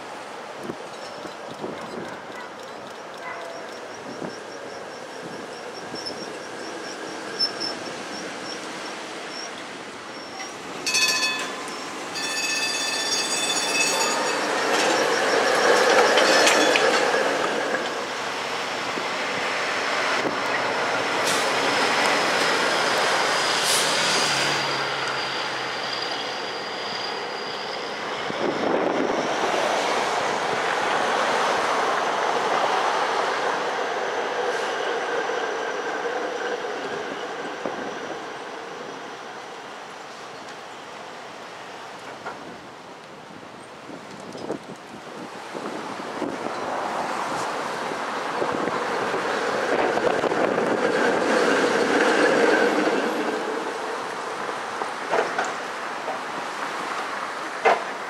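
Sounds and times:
city traffic: 0.0 - 58.0
streetcar wheel and rail noise: 0.0 - 58.0
high wheel squeal: 3.5 - 17.8, 22.5 - 29.3, 34.5 - 39.5
ringing signal tones: 10.9 - 16.7.

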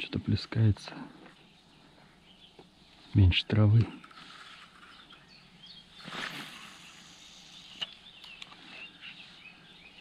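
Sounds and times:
faint bird chirps: 0.9 - 10.0
rustling swish: 6.0 - 7.2
light clicks: 7.8 - 8.6.

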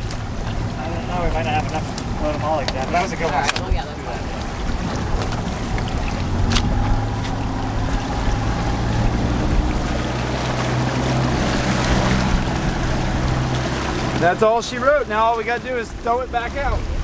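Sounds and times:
outboard motor idling: 0.0 - 17.0
wind on microphone: 1.7 - 14.2.

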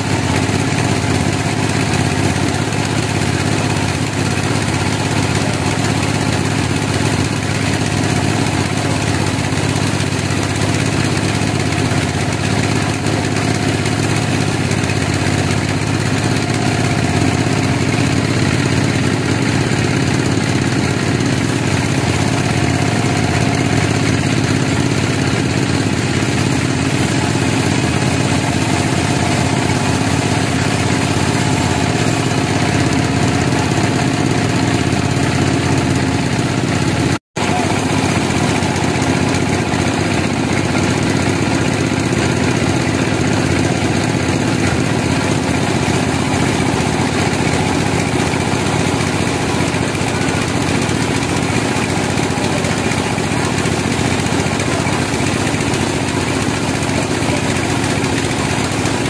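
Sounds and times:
band sawmill sawing a log: 0.0 - 59.0.

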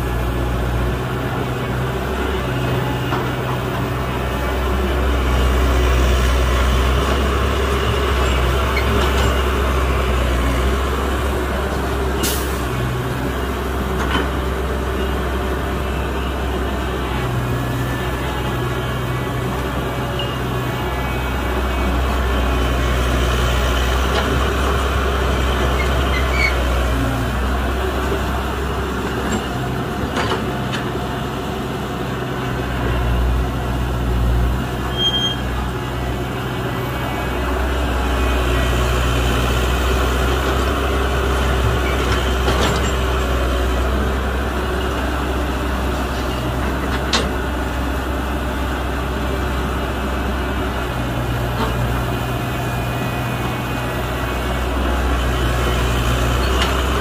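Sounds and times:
heavy diesel engines droning: 0.0 - 57.0.

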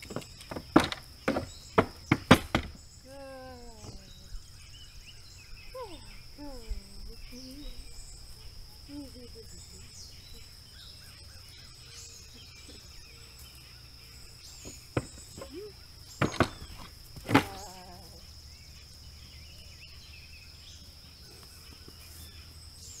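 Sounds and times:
hooves knocking on wooden boards: 0.0 - 2.8, 14.6 - 17.7
insects chirring: 0.0 - 23.0.

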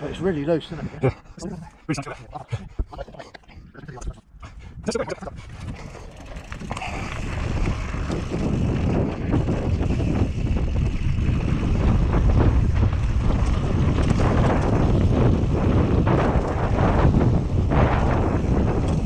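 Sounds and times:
wind buffeting microphone: 0.0 - 19.0
bike tyres on loose gravel: 5.4 - 19.0.

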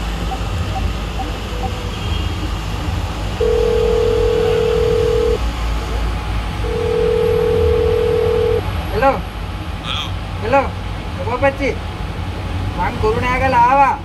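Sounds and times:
telephone ringback tone: 3.4 - 5.4, 6.7 - 8.6.

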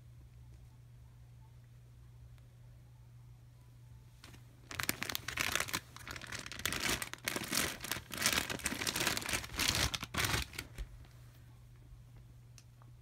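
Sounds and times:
plastic packaging crinkling and tearing: 4.2 - 10.9.

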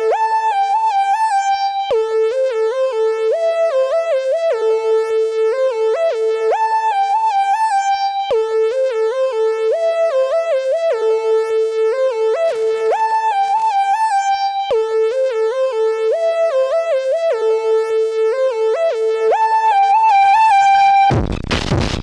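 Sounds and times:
buzzy synthesizer sequence: 0.0 - 22.0
brief crackle: 21.1 - 22.0.

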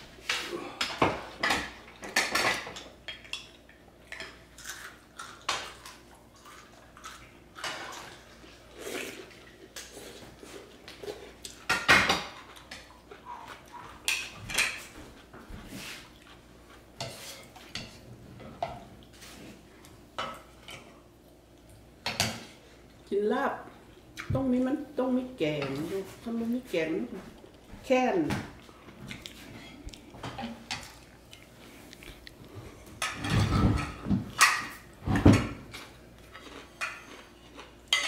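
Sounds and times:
dishes and cutlery clinking: 33.0 - 35.8, 36.4 - 38.0.

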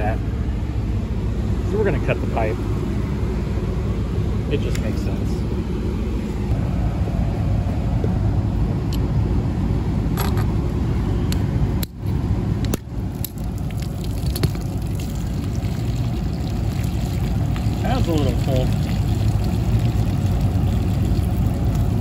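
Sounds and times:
steady low rumble: 0.0 - 22.0
water pouring and splashing: 13.1 - 22.0.

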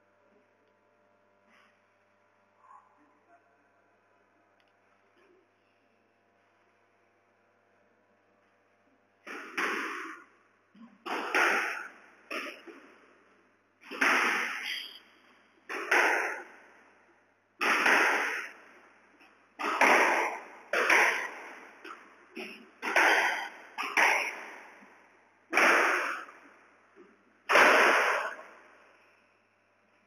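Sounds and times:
ball smacking off court walls: 9.2 - 10.3, 11.0 - 13.0, 15.7 - 16.8, 17.6 - 18.8, 19.6 - 24.9
squash ball hit by rackets: 9.2 - 10.3, 11.0 - 13.0, 13.8 - 15.0, 15.7 - 16.8, 17.6 - 18.9, 19.6 - 26.5, 27.5 - 28.8.

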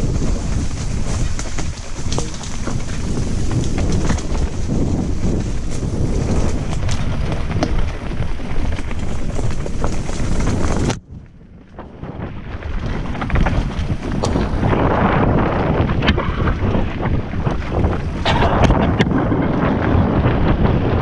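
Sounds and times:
bike clicks and knocks: 0.0 - 11.0, 12.8 - 14.8
tyres running over dirt trail: 0.0 - 21.0
wind buffeting microphone: 0.0 - 21.0.

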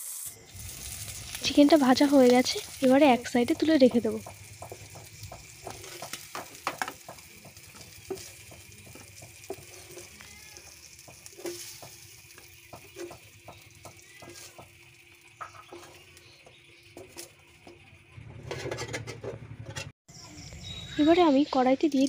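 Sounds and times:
chicken sizzling in a pan: 0.0 - 18.7
spatula scraping a pan: 3.6 - 19.9.

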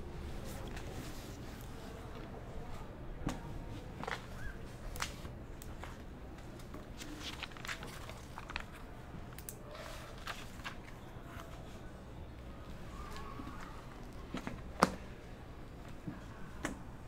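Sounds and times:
low room hum: 0.0 - 17.0
paper pages rustling: 3.7 - 11.9.

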